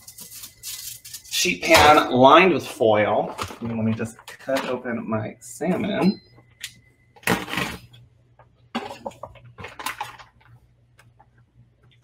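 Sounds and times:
packaging rustling and crinkling: 0:08.8 - 0:10.6.

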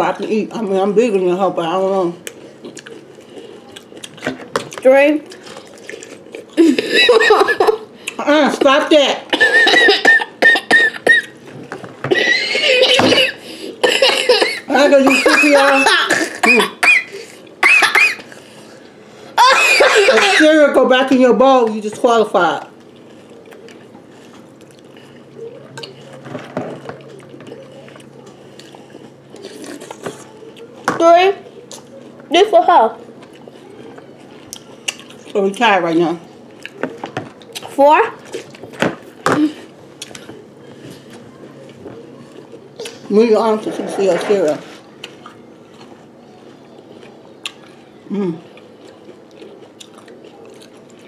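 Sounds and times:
people chewing cereal: 0:02.2 - 0:08.2, 0:09.4 - 0:14.1, 0:22.7 - 0:30.8, 0:31.4 - 0:43.1, 0:44.6 - 0:51.0
spoons stirring cereal in bowls: 0:43.2 - 0:46.0.

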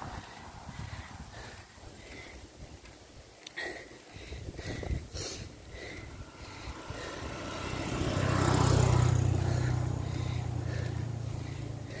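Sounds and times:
motor vehicle passing by: 0:05.6 - 0:12.0.

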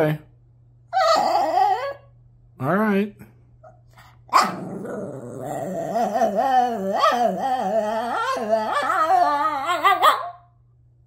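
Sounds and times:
dog howling whine: 0:00.9 - 0:02.1, 0:04.7 - 0:10.3.

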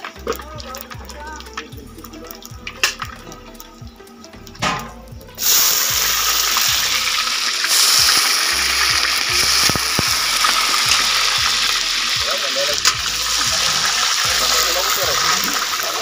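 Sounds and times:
faint crackles: 0:00.0 - 0:16.0
oil sizzling in a wok: 0:00.0 - 0:16.0.

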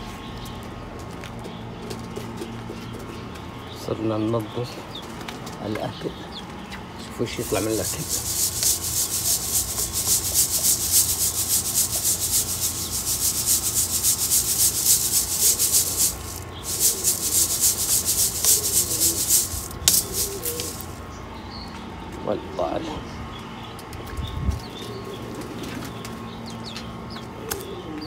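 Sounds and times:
grains rattling in wire sieve: 0:07.4 - 0:21.0.

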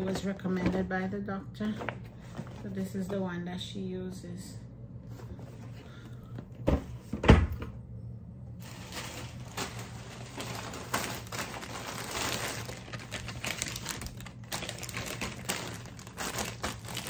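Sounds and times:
plastic packaging crinkling: 0:08.6 - 0:17.0.

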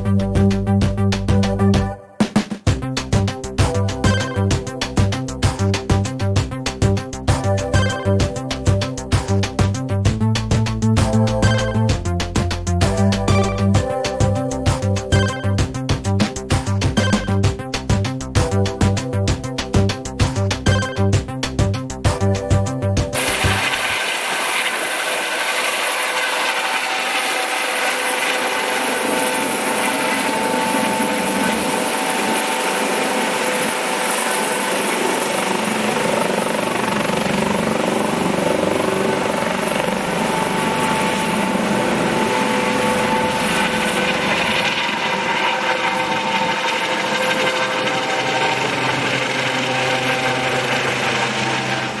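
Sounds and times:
helicopter rotor noise: 0:02.7 - 0:52.0
turbine whine: 0:23.2 - 0:52.0.

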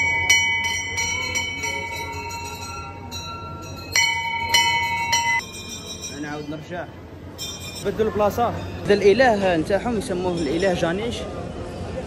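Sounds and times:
temple bell ringing: 0:00.0 - 0:09.3.

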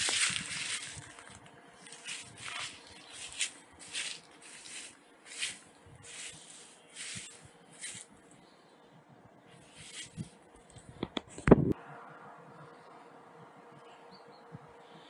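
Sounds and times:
footsteps through dry grass: 0:00.0 - 0:08.3, 0:09.5 - 0:10.9.

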